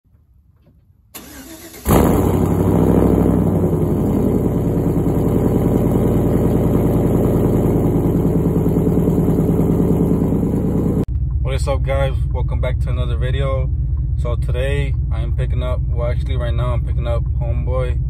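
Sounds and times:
truck engine revving and idling: 1.5s - 18.0s.

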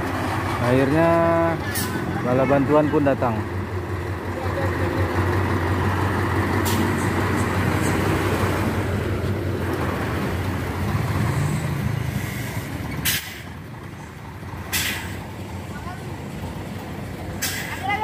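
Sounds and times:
diesel truck engines: 0.0s - 18.0s
short sharp hiss: 14.7s - 15.2s.

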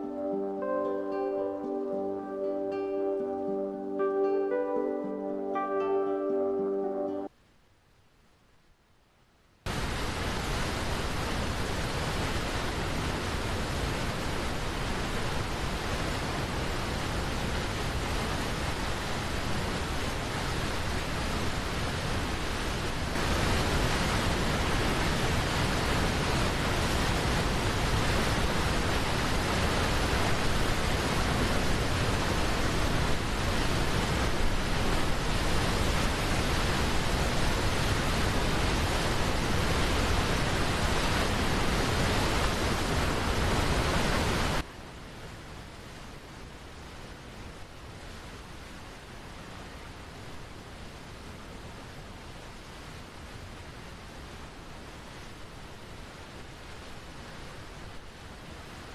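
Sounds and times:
waterfall rushing: 0.0s - 7.3s, 9.7s - 44.7s
river flowing over rocks: 9.7s - 58.9s.

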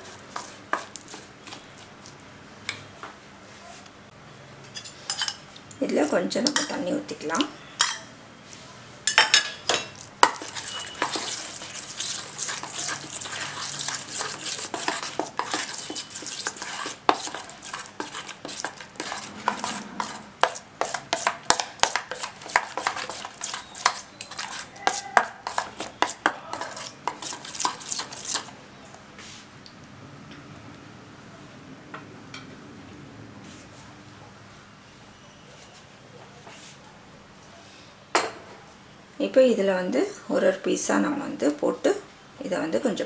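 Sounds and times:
metal spoon stirring thick paste: 0.0s - 2.2s, 9.7s - 28.6s.

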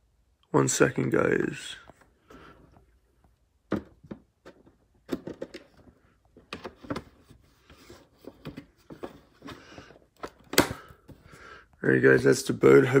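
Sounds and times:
handling clicks and knocks: 3.7s - 7.2s.

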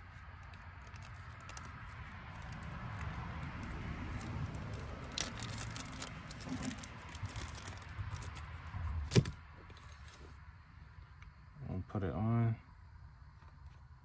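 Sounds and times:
plastic bag crinkling: 0.4s - 8.5s.

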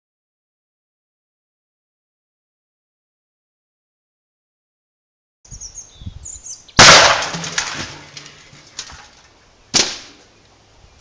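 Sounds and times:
loud bangs: 6.8s - 8.3s
debris clattering: 6.8s - 9.4s.

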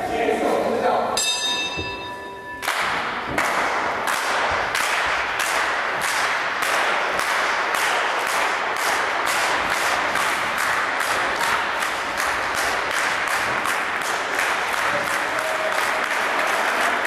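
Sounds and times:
crowd noise: 0.0s - 17.0s
bell ringing: 1.2s - 2.8s
audience clapping in unison: 2.6s - 17.0s.

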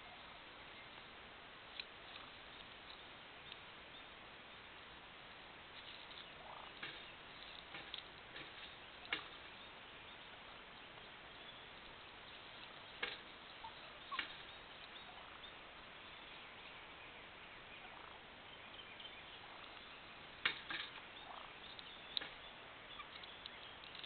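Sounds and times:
turkey gobbling: 0.0s - 0.4s, 5.8s - 10.4s, 12.2s - 15.8s, 17.8s - 18.2s, 19.4s - 22.3s.

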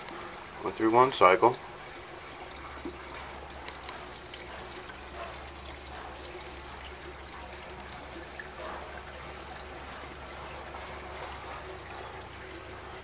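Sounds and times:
water pouring and trickling: 0.0s - 13.0s.

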